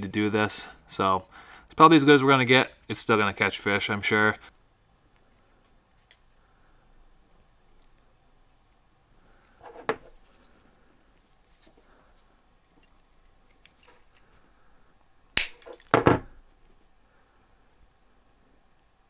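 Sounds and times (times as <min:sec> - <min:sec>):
objects knocking on workbench: 0:15.9 - 0:16.3.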